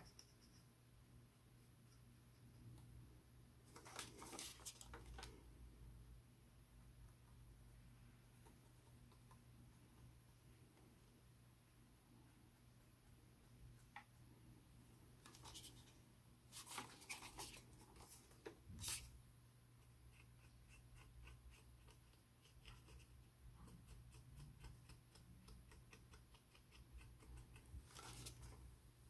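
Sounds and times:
handling rustles: 0:03.6 - 0:05.4.

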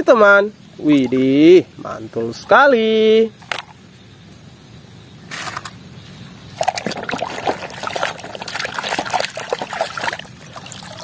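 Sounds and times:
water splashing in a tub: 0:00.8 - 0:02.7, 0:06.6 - 0:11.0
water pouring off toy: 0:06.6 - 0:11.0.

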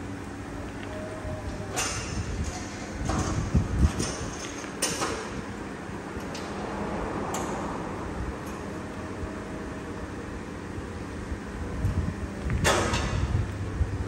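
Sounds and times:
workshop background noise: 0:00.0 - 0:10.1.

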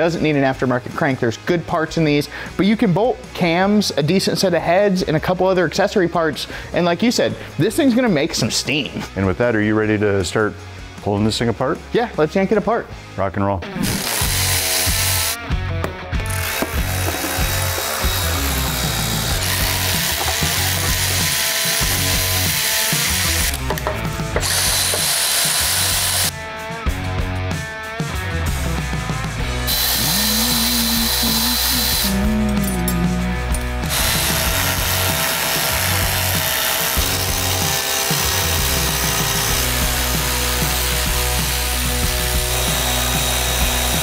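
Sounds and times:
background music: 0:00.0 - 0:44.0
electric ratchet whirring: 0:13.8 - 0:15.4, 0:16.2 - 0:26.3, 0:29.5 - 0:44.0.

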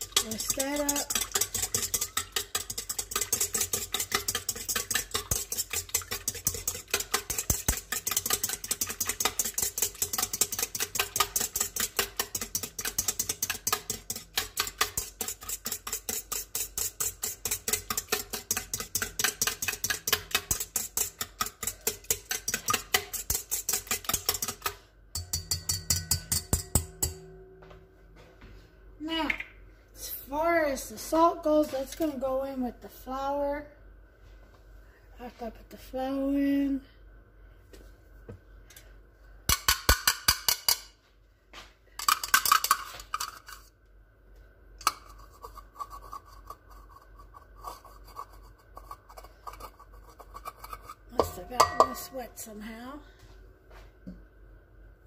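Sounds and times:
wire whisk clicking against metal bowl: 0:00.0 - 0:27.2.

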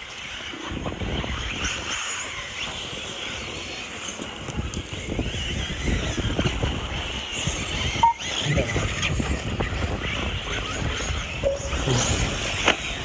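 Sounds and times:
rc car motors whining: 0:00.0 - 0:13.0
wind buffeting microphone: 0:00.0 - 0:13.0.

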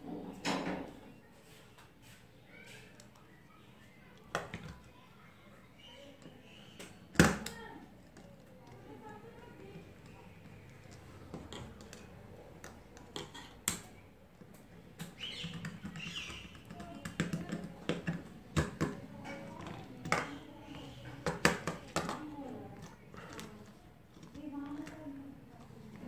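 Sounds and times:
wires being handled: 0:06.0 - 0:26.0.

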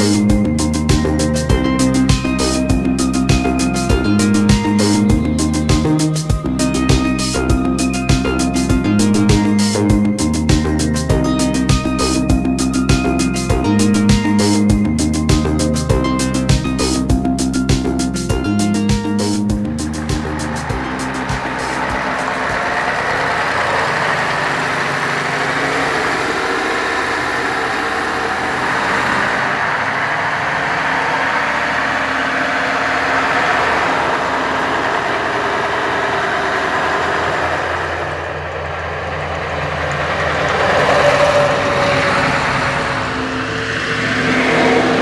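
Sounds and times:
truck diesel engine running: 0:00.0 - 0:45.0.

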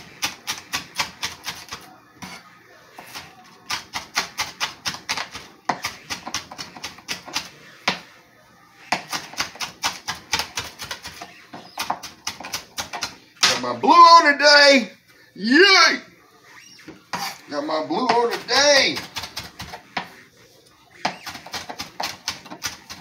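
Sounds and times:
knife chopping on cutting board: 0:00.0 - 0:02.4, 0:03.0 - 0:08.1, 0:08.9 - 0:13.6, 0:17.1 - 0:17.4, 0:18.0 - 0:20.2, 0:21.0 - 0:23.0.

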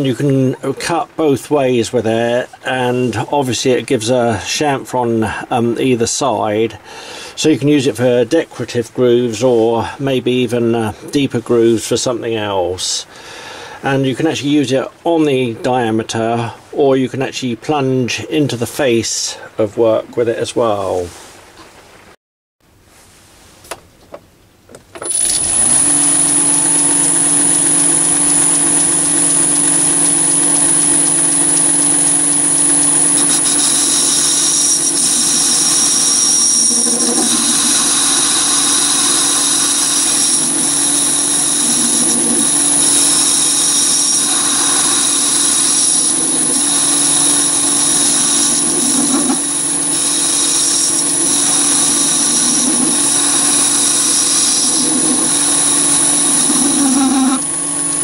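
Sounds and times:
lathe motor whine: 0:25.0 - 0:58.0
cutting tool grooving steel: 0:33.1 - 0:57.5.

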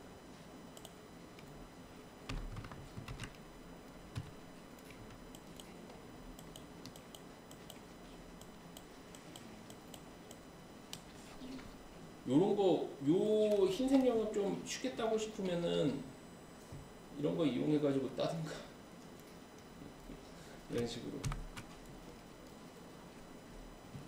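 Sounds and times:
keyboard and mouse clicks: 0:02.3 - 0:03.4, 0:06.4 - 0:11.1.

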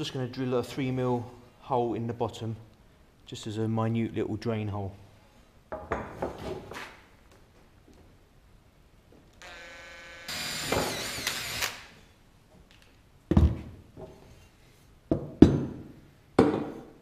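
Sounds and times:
cordless drill whining: 0:09.4 - 0:12.0.

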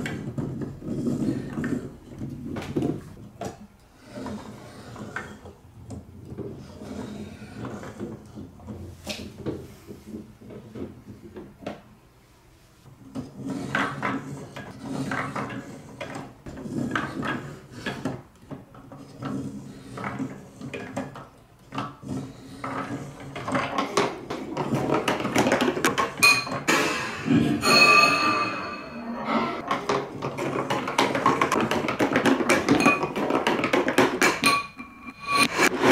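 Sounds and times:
ball rolling down slope: 0:00.0 - 0:11.9, 0:12.9 - 0:35.9.

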